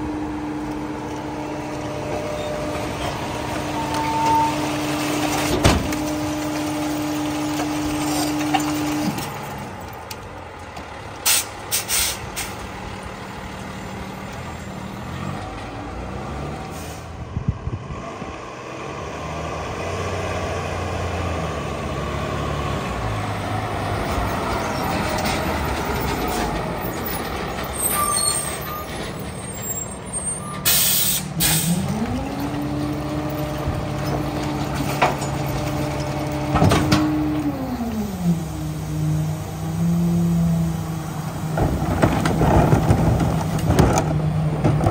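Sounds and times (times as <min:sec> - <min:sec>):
diesel truck engine droning: 0:00.0 - 0:44.9
air brake hisses: 0:11.2 - 0:12.6, 0:16.7 - 0:17.1, 0:30.6 - 0:31.8.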